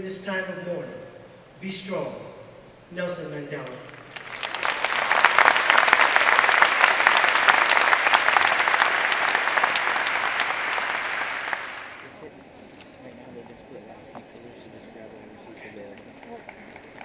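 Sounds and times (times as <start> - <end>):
large audience applauding: 3.9 - 12.1.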